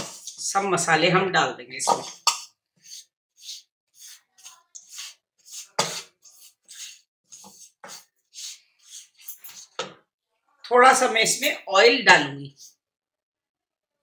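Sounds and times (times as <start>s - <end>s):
wooden spatula scraping pan: 0.0s - 0.6s, 1.8s - 9.9s.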